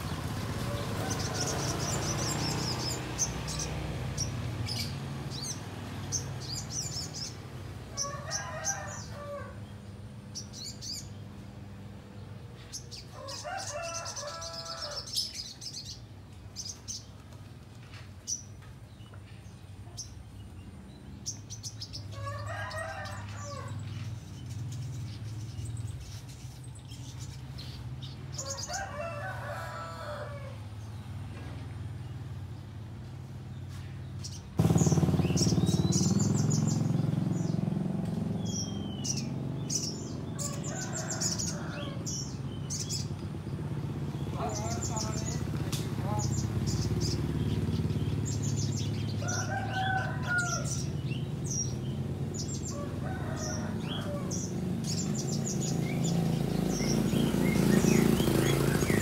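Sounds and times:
rooster crowing: 0.6 - 2.5, 7.9 - 9.6, 13.2 - 15.2, 22.1 - 23.8, 28.4 - 30.7, 40.3 - 42.4, 49.2 - 51.0, 52.6 - 54.6
bird chirping sharply: 34.6 - 37.7.

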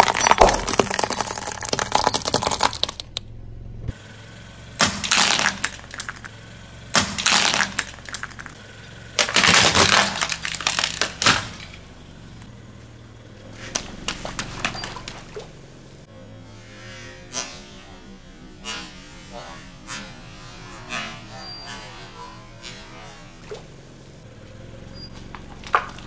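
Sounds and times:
eggs cracking under tyre: 0.0 - 3.3, 4.8 - 11.8, 13.6 - 15.5, 25.0 - 26.0
glass bulbs crunching under tyre: 0.0 - 3.3, 4.8 - 6.4, 7.0 - 12.6, 13.6 - 15.5, 25.0 - 26.0.

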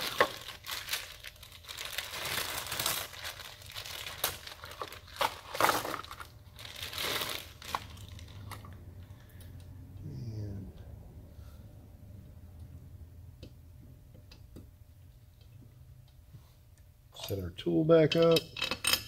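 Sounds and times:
plastic bag crinkling: 0.0 - 8.7.

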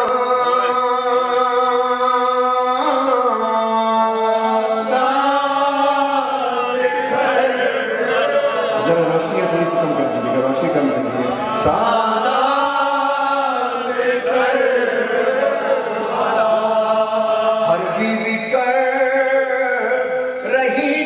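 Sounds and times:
man chanting elegy: 0.0 - 14.0.

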